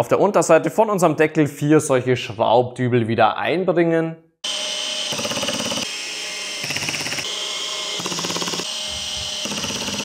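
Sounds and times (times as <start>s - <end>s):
drill-driver driving dowels: 5.1s - 5.9s, 6.6s - 10.0s.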